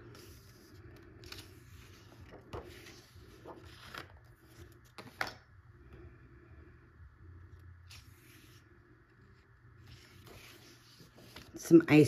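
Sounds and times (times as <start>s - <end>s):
paper rustling and swishing: 0.0s - 5.3s, 9.4s - 11.9s.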